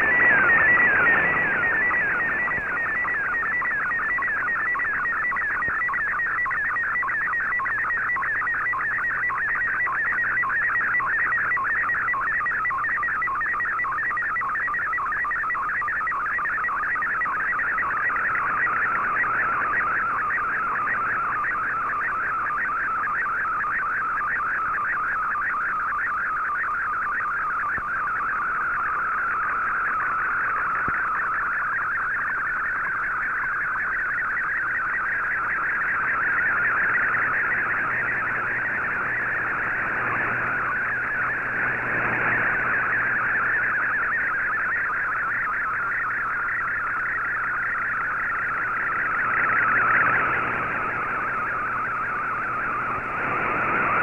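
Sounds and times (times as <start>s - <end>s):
faint steady hum: 0.0s - 54.0s
warbling data tone: 0.0s - 54.0s.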